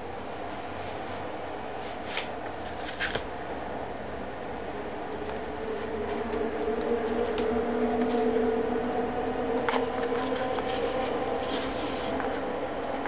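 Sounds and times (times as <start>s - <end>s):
paper cards handled: 1.8s - 3.3s, 9.7s - 12.4s
machine hum: 3.3s - 13.0s.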